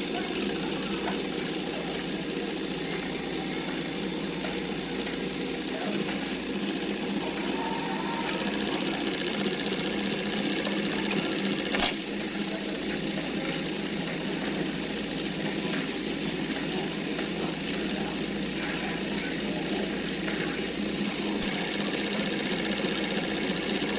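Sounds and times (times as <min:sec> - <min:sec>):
film projector running: 0:00.0 - 0:23.9
sharp click: 0:11.7 - 0:12.1.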